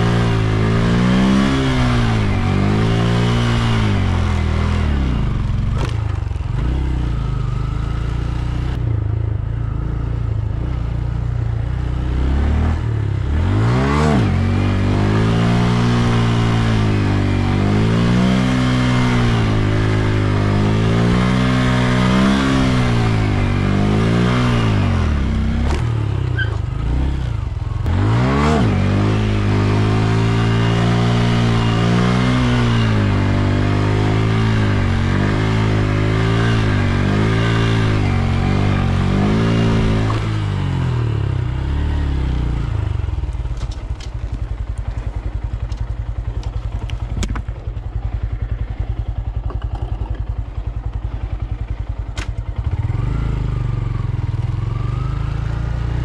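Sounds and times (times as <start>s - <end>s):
motorcycle engine revving: 0.0s - 56.0s
motorcycle engine idling: 4.4s - 12.0s, 24.6s - 27.9s, 42.6s - 56.0s.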